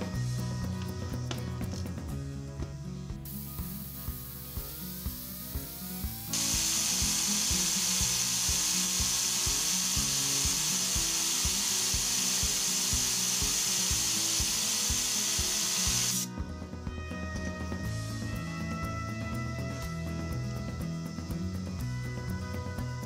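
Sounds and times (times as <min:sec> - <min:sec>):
compressed air hissing: 0:03.2 - 0:16.3.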